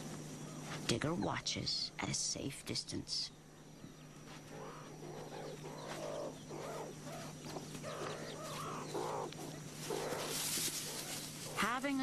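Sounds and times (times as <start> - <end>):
meerkats giving short calls: 4.5 - 11.8.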